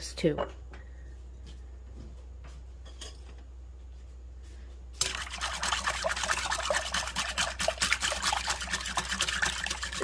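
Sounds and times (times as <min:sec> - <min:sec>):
faint steady hum: 0:00.0 - 0:10.0
liquid sloshing: 0:05.0 - 0:10.0
whisk beating in a glass bowl: 0:05.0 - 0:10.0.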